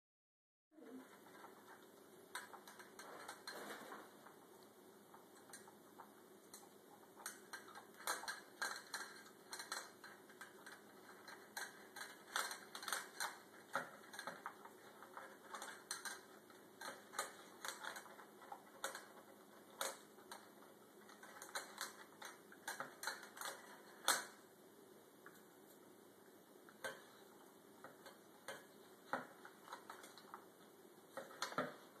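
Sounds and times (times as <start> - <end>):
kibble clicking against bowl: 5.2 - 24.3.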